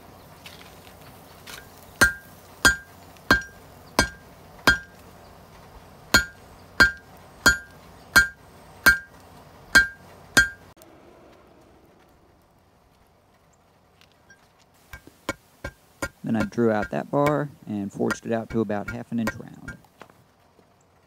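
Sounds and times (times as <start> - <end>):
hammer ringing on anvil: 2.0 - 4.9, 6.2 - 9.1, 9.8 - 10.6.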